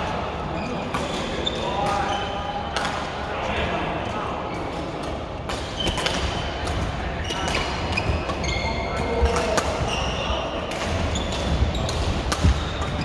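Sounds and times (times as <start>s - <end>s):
shoes squeaking on floor: 0.5s - 2.4s, 7.2s - 13.0s
rackets hitting shuttlecocks: 10.7s - 13.0s.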